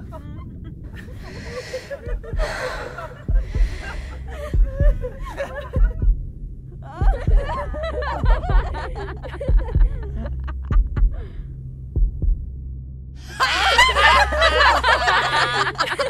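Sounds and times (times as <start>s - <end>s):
girls laughing and chattering: 0.0s - 6.0s, 6.8s - 10.8s, 13.3s - 16.0s
low hum: 0.0s - 16.0s
heartbeat thumps: 1.2s - 12.8s.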